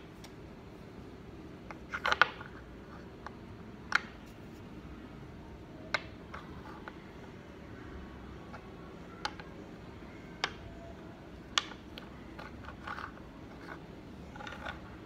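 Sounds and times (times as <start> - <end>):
low steady hum: 0.0 - 15.0
dominoes clicking on wooden table: 11.5 - 14.9.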